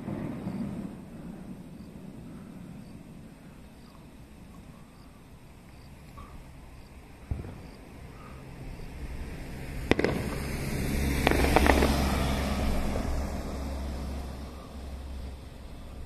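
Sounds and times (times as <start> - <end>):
rolling rumble: 0.0 - 16.0
firework bang: 7.2 - 7.8, 9.9 - 13.2
crackling firework reports: 8.7 - 15.2.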